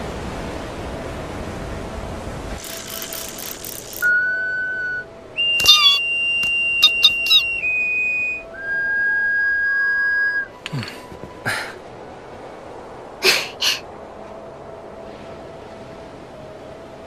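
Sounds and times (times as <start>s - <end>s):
vessel flute playing slow tune: 4.0s - 10.6s
short chirping squeaks: 5.6s - 6.1s, 6.8s - 7.6s.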